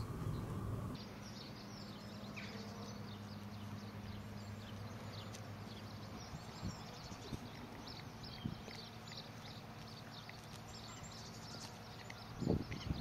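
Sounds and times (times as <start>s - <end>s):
small birds chirping: 0.0s - 13.0s
steady low hum: 0.0s - 13.0s.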